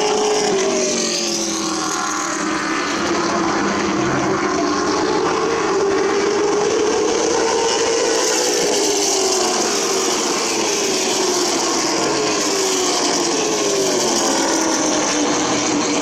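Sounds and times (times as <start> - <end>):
race car engines: 0.0 - 16.0.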